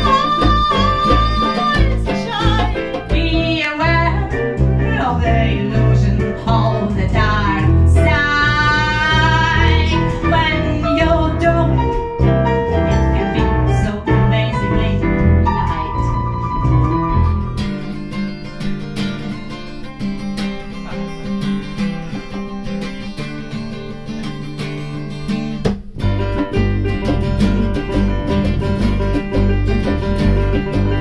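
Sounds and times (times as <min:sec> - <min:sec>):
strummed acoustic guitar: 0:00.0 - 0:10.6, 0:16.9 - 0:31.0
woman singing: 0:00.0 - 0:12.0, 0:12.8 - 0:16.3
keyboard: 0:00.0 - 0:22.5
bass: 0:00.0 - 0:31.0.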